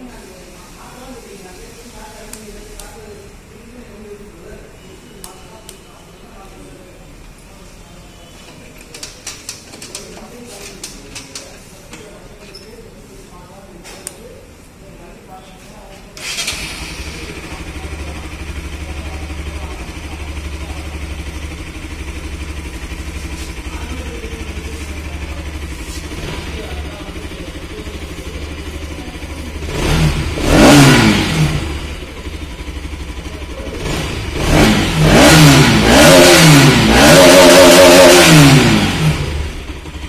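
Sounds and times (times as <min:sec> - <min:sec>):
motorcycle engine idling and revving: 0:16.2 - 0:40.0.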